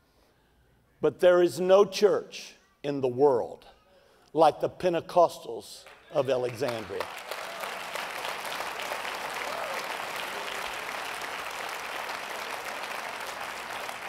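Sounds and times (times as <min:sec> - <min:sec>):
congregation applauding: 0:05.8 - 0:14.0.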